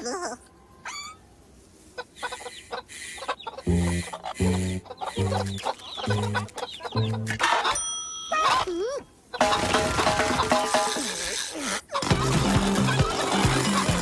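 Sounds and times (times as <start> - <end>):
cartoon hens clucking: 2.0 - 7.8.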